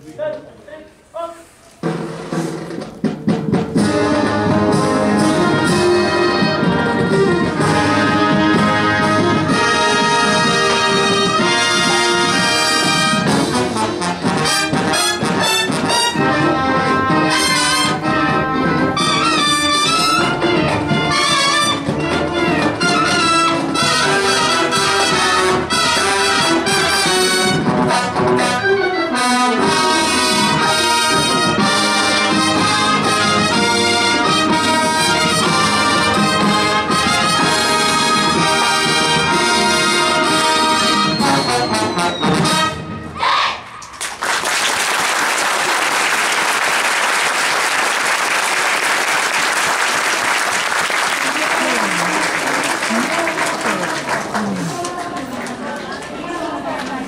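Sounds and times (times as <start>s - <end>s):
marching drums: 1.8s - 28.4s, 29.6s - 42.7s
brass chords: 3.5s - 43.5s.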